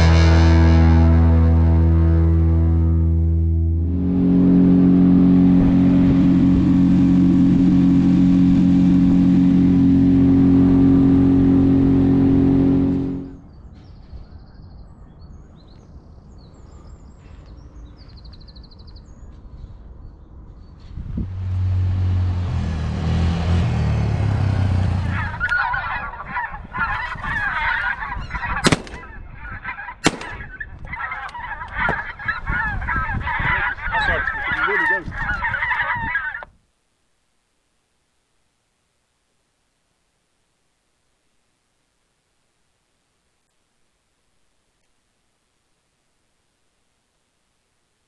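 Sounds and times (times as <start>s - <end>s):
low rumble: 0.0s - 13.7s
geese honking: 24.9s - 36.5s
shotgun shots: 28.6s - 29.3s, 30.0s - 30.6s.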